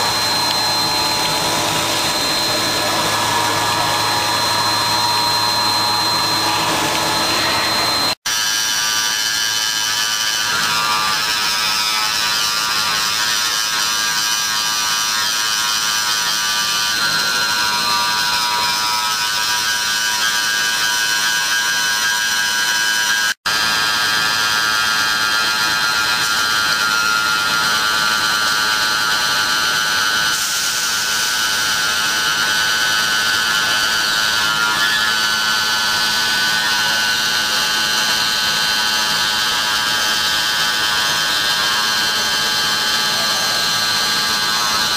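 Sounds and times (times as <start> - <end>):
milling machine spindle whine: 0.0 - 44.9.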